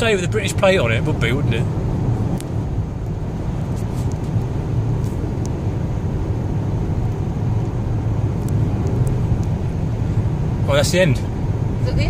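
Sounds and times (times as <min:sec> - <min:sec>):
car cabin road drone: 0:00.0 - 0:12.0.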